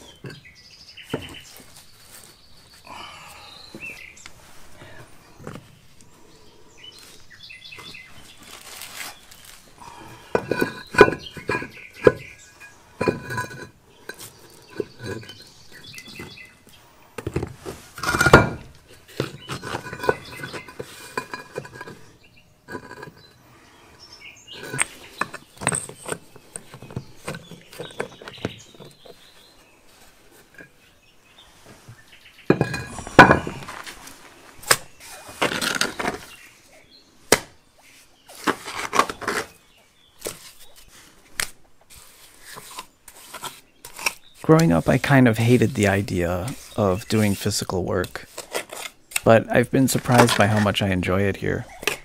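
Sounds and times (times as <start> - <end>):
stone and tile rubble clattering: 8.6 - 16.4, 17.3 - 22.1, 24.5 - 29.1, 32.5 - 34.1.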